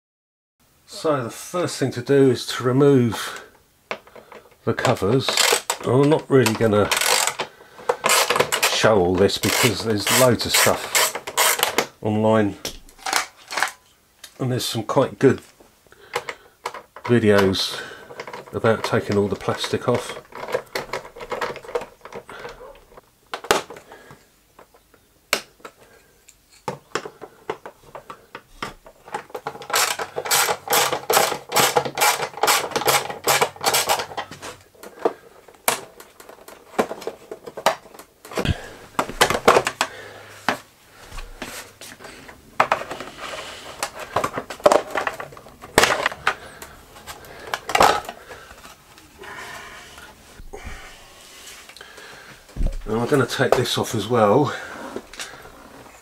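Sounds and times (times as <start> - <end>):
hand tool undoing bolt: 4.8 - 11.9, 28.0 - 35.9.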